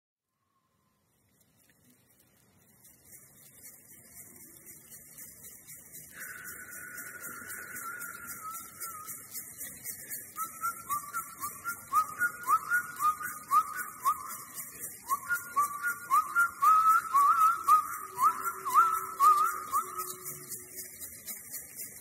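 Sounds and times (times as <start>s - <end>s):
faint shaking rattle: 1.1s - 22.0s
person whistling a melody: 6.2s - 20.8s.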